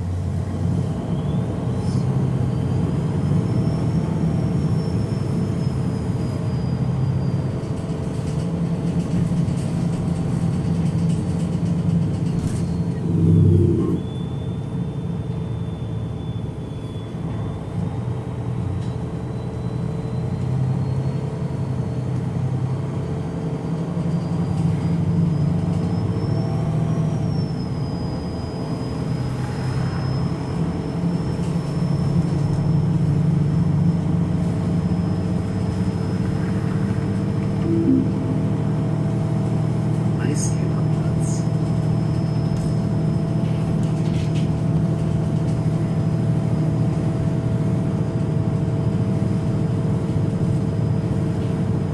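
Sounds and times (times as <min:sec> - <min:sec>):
diesel bus engine idling: 0:00.0 - 0:29.4, 0:30.0 - 0:51.9
low rumble: 0:12.7 - 0:14.2.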